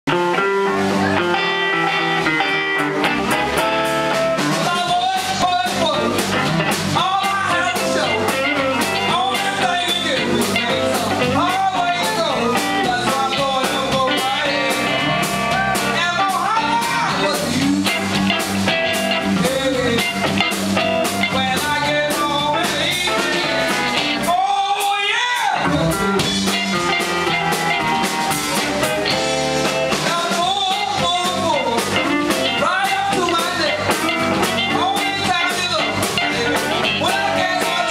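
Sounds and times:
electric blues band playing: 0:00.1 - 0:37.9
woman singing into a microphone: 0:07.0 - 0:15.1, 0:16.0 - 0:17.9, 0:19.2 - 0:20.4, 0:21.2 - 0:23.6, 0:30.0 - 0:34.0, 0:34.6 - 0:37.9.

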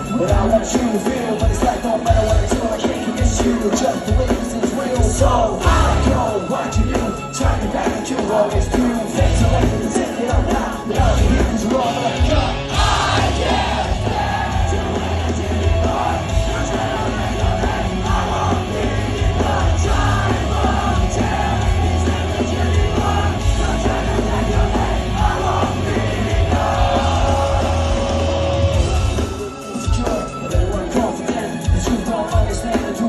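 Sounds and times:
crowd noise: 0:00.0 - 0:33.0
live rock band playing: 0:00.0 - 0:33.0.

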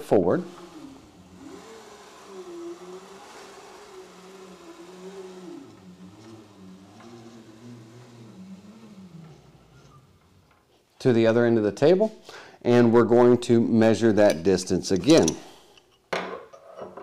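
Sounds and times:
machine gantry whirring hum: 0:00.0 - 0:10.7.

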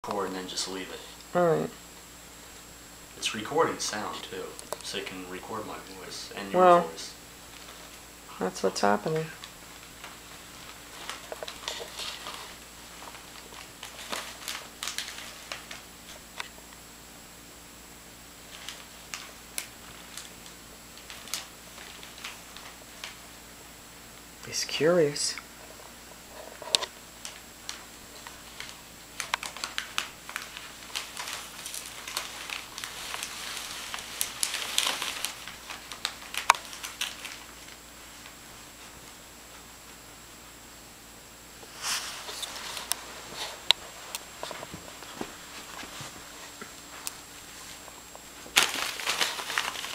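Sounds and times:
wrapping paper crinkling: 0:03.2 - 0:16.6, 0:18.4 - 0:23.4, 0:25.5 - 0:40.0, 0:41.7 - 0:49.9.

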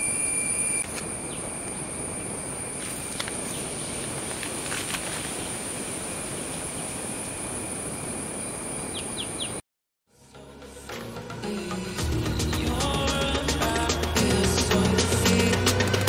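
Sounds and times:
high-pitched insect trill: 0:00.0 - 0:09.4.

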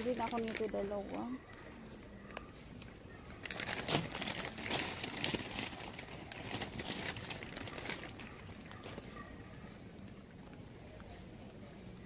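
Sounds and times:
plastic wrapping crinkling: 0:00.0 - 0:02.4, 0:03.3 - 0:09.2.

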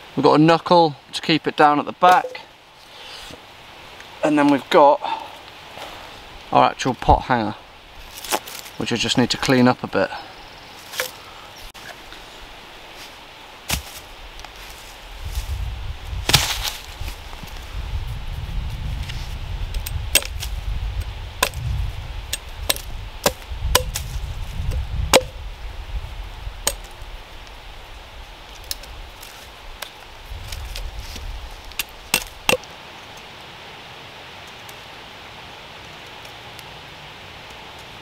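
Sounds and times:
hatchet chopping wood: 0:19.8 - 0:20.5, 0:21.4 - 0:21.6, 0:22.3 - 0:24.1, 0:25.1 - 0:25.4, 0:26.6 - 0:26.9, 0:31.7 - 0:32.7.

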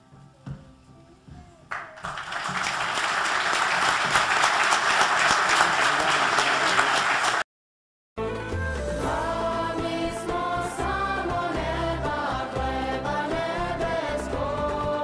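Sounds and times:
audience applauding: 0:01.7 - 0:07.5.

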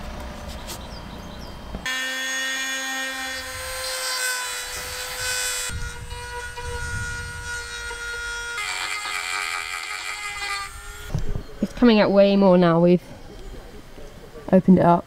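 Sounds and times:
rotary tool grinding whine: 0:01.8 - 0:12.0.

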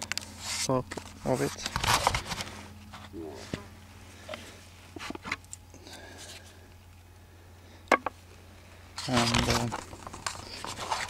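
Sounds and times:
steady low hum: 0:00.0 - 0:11.0
wooden clicks and scrapes: 0:09.0 - 0:11.0.

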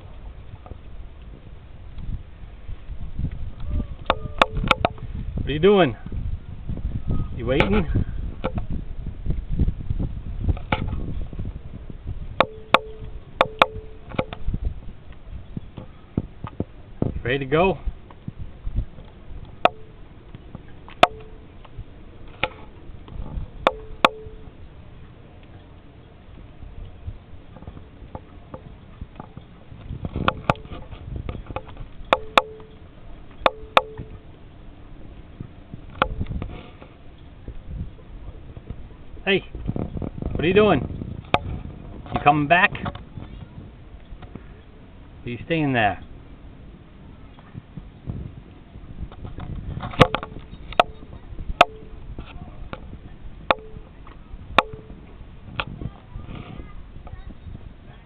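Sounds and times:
steady low rumble: 0:00.0 - 0:58.0
wind: 0:00.0 - 0:58.0
sharp ringing knocks: 0:12.4 - 0:14.5, 0:19.6 - 0:20.0, 0:20.9 - 0:21.5, 0:23.6 - 0:24.6, 0:30.2 - 0:34.2, 0:50.0 - 0:52.0, 0:53.5 - 0:54.0, 0:54.6 - 0:55.1.

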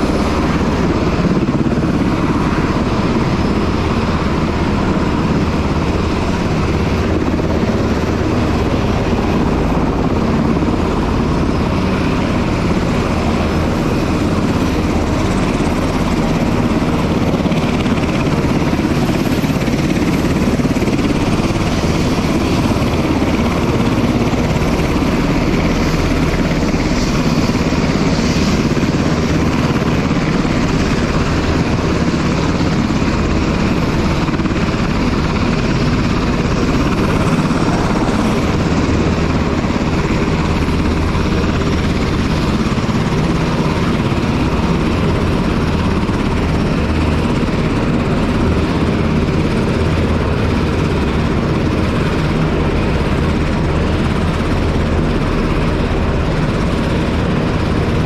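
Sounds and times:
aircraft turbine engines running: 0:00.0 - 0:58.0.

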